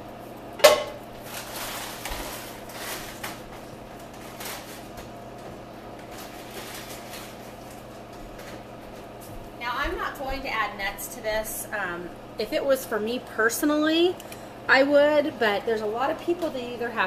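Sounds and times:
rustling and handling noise: 1.1s - 9.5s.

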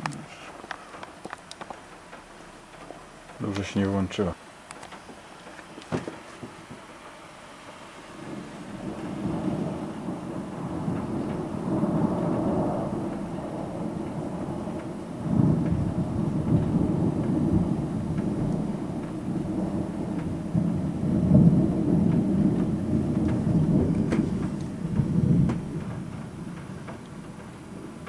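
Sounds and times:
steady rain: 0.0s - 28.0s
thunder rumbling: 5.8s - 28.0s.

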